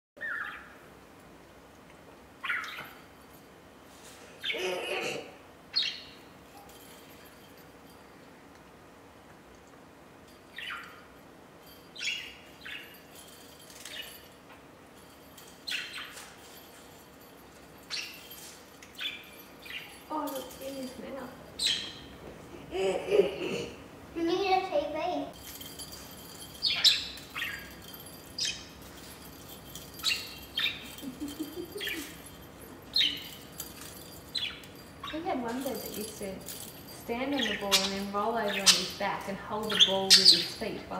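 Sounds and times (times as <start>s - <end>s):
budgerigar chirping: 0.2s - 0.8s, 2.4s - 2.8s.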